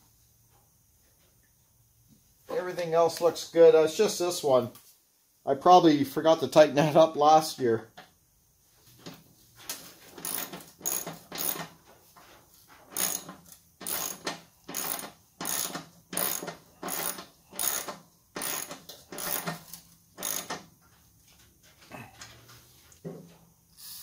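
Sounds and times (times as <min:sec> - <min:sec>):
ratchet wrench clicking: 0:10.2 - 0:11.8, 0:12.9 - 0:20.6.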